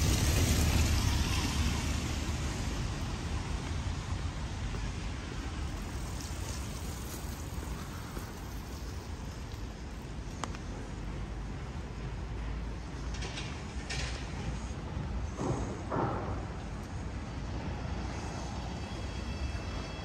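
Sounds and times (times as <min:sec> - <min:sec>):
car tyres hissing on wet road: 0:00.0 - 0:10.0
background traffic hiss: 0:00.0 - 0:20.0.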